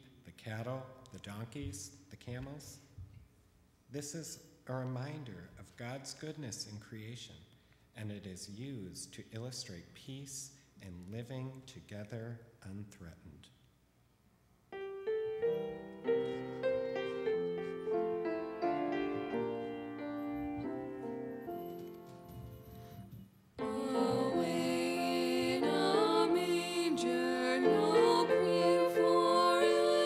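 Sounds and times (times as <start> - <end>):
grand piano: 14.7 - 30.0
women singing: 23.6 - 30.0.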